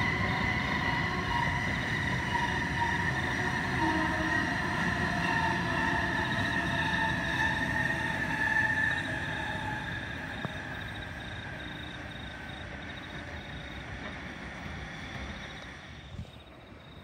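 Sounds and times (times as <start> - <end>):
electric train motor whine: 0.0 - 17.0
train low rumble: 0.0 - 17.0.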